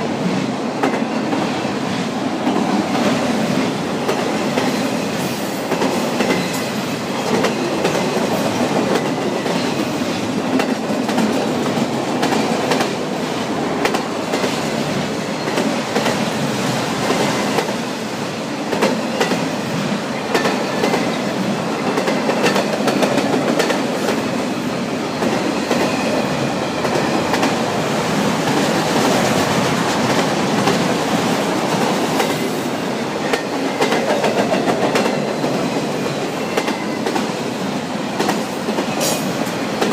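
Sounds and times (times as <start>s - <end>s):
steel wheels rumbling on rail: 0.0s - 39.9s.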